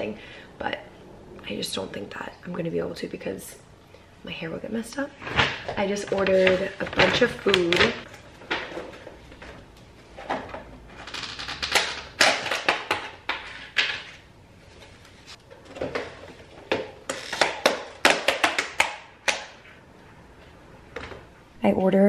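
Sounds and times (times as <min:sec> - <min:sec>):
plastic containers clacking on wood: 0:05.3 - 0:09.0.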